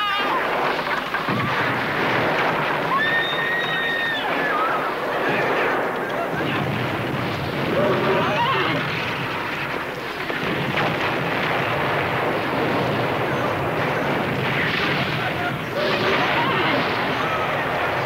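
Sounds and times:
continuous rumbling noise: 0.0s - 18.0s
crowd shouting: 2.8s - 6.7s, 15.1s - 18.0s.

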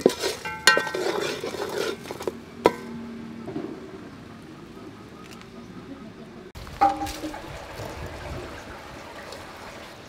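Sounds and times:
metal pot clanging: 0.0s - 3.0s, 6.8s - 7.6s.

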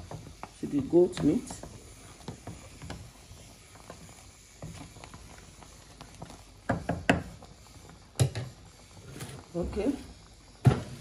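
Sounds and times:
wooden spoon knocking in pot: 5.9s - 7.4s.

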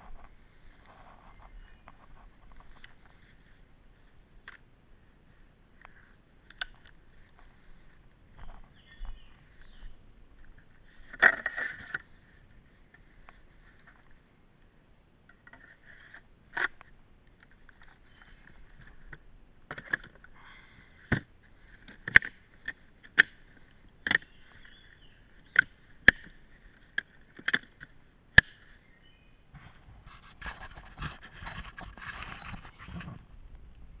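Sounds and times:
rustling scrapes: 0.0s - 4.2s, 29.5s - 33.4s
toolbox scraping on wood: 29.6s - 33.3s.

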